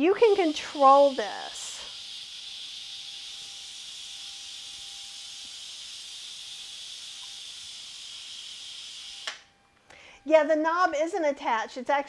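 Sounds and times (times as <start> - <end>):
steam hissing from pressure valve: 0.2 - 9.4.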